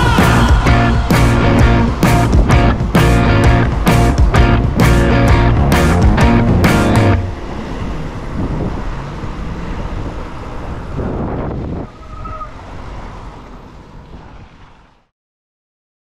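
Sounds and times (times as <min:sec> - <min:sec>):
car engines: 0:00.0 - 0:15.1
tyre noise on wet road: 0:00.0 - 0:15.1.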